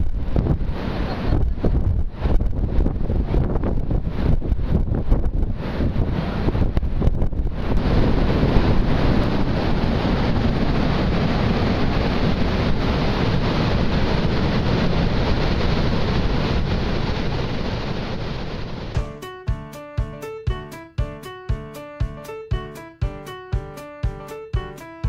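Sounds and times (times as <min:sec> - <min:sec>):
wind on microphone: 0:00.0 - 0:19.0
waterfall roar: 0:00.7 - 0:01.7, 0:07.6 - 0:19.0.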